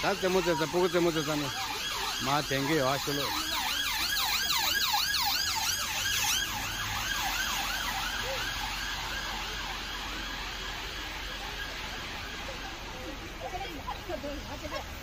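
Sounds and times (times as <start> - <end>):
emergency siren yelping: 0.0 - 15.0.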